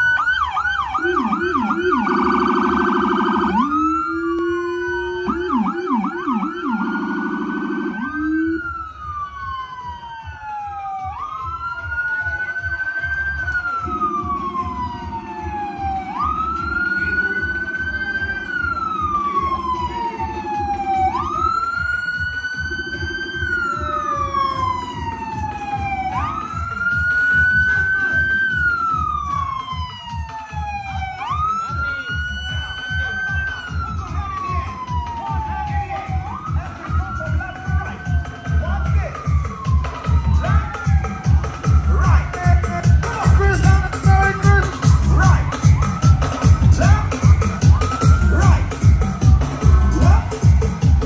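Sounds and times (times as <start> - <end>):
police siren yelping and wailing: 0.0 - 51.0.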